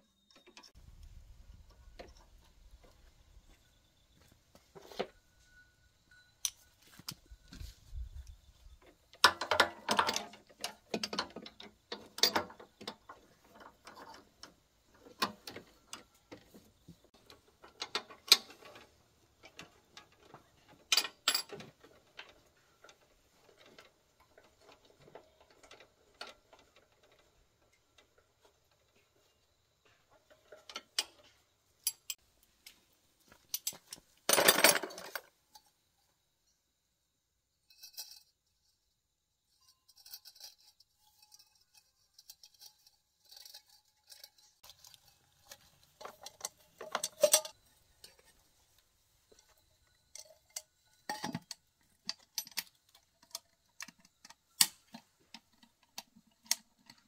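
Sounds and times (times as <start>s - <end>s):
metal tools clanking on engine parts: 3.9s - 32.2s, 33.4s - 35.8s, 39.5s - 57.0s
metal parts rattling: 9.1s - 15.9s, 33.5s - 35.7s, 39.5s - 57.0s.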